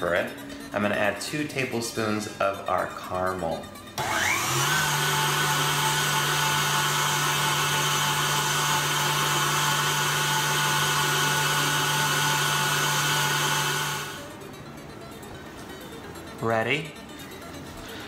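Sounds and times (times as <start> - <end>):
stand mixer motor humming: 4.0 - 14.2.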